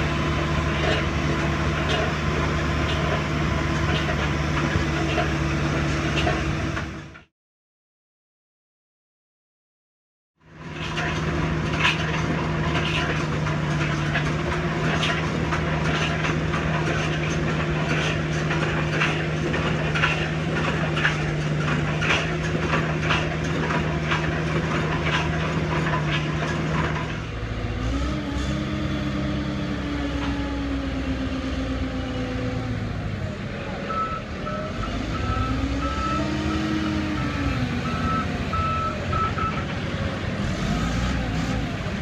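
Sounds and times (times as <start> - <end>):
drill rig engine running: 10.6 - 31.2.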